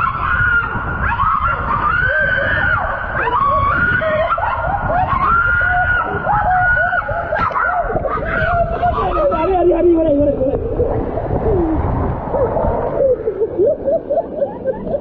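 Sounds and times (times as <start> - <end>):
high-pitched wailing screams: 0.0 - 9.6.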